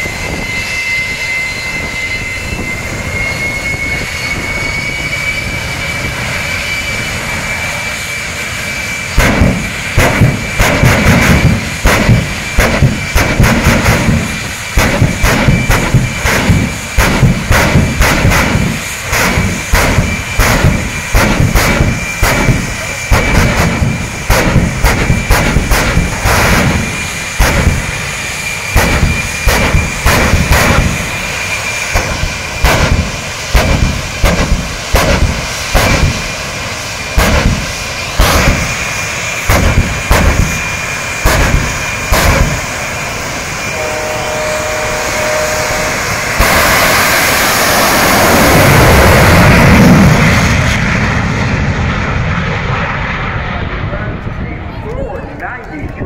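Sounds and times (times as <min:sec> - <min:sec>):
jet engine roaring at full power: 0:00.0 - 0:56.0
jet engine turbine whine: 0:00.0 - 0:56.0
loud flame bangs: 0:09.1 - 0:42.8, 0:46.3 - 0:51.4
horn-like tone: 0:43.7 - 0:46.3.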